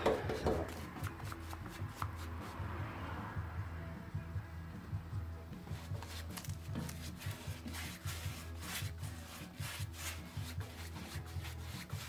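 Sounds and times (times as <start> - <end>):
background music: 0.0 - 12.0
paintbrush swishing on metal: 5.8 - 12.0.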